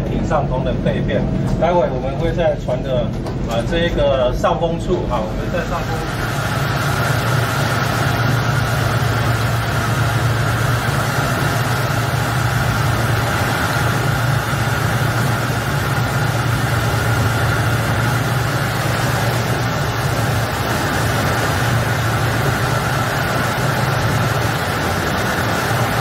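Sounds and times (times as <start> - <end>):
boat engine droning: 0.0 - 26.0
wind and sea hiss: 5.2 - 26.0.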